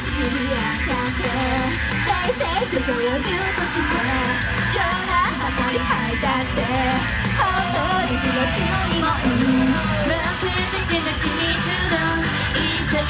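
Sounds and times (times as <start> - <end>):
electric guitar and drums: 0.0 - 13.0
person singing: 0.0 - 13.0.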